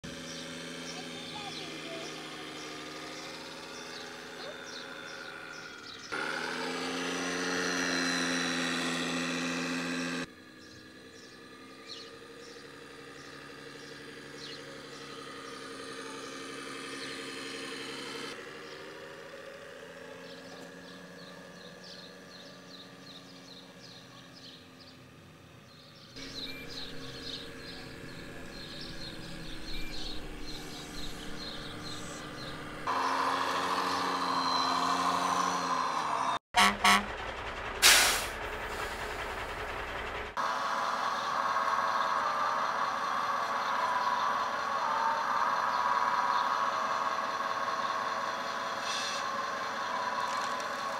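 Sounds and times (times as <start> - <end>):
simulated diesel engine sound: 0.0 - 50.9.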